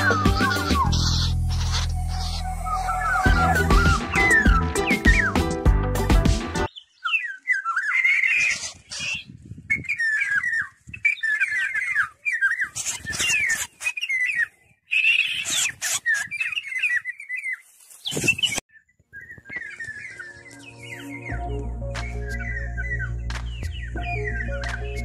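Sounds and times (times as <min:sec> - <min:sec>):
wings flapping: 0:00.0 - 0:02.4
bird harsh distress calls: 0:00.0 - 0:05.4, 0:06.7 - 0:18.6
rustling wings and grass: 0:15.4 - 0:18.6.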